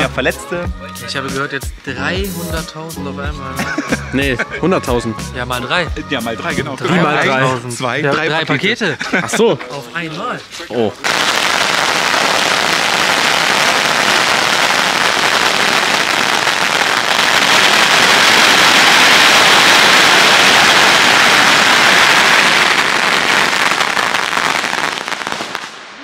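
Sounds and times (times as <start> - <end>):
firecracker strings crackling: 11.0 - 26.0.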